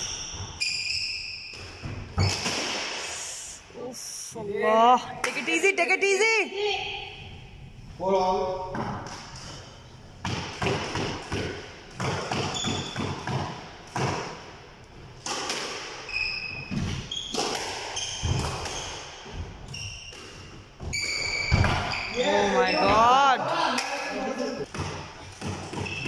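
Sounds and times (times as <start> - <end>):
shoe squeaks: 0.0 - 2.4, 12.3 - 13.2, 16.1 - 23.1, 25.7 - 26.0.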